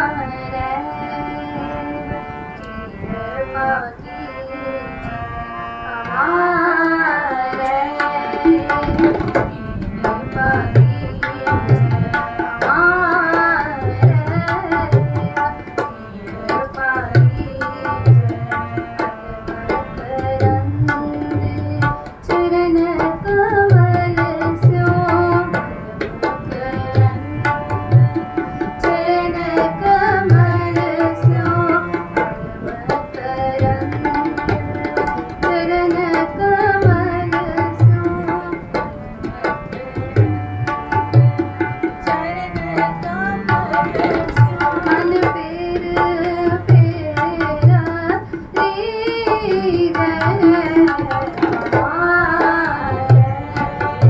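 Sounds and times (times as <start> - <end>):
woman singing a hymn: 0.0 - 2.1, 3.1 - 5.0, 6.1 - 9.0, 19.8 - 27.4, 28.8 - 32.1, 35.5 - 38.7, 42.2 - 50.9
harmonium chords: 0.0 - 54.0
tabla drumming: 6.0 - 54.0.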